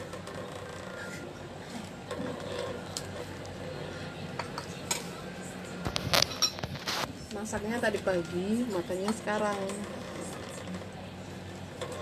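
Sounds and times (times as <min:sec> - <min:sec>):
spoon scraping a plate: 0:06.1 - 0:07.1.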